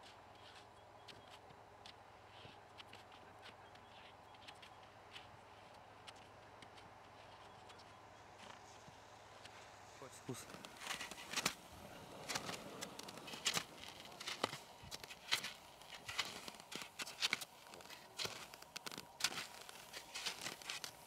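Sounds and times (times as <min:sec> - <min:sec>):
skis scraping on granular snow: 0:10.3 - 0:21.0.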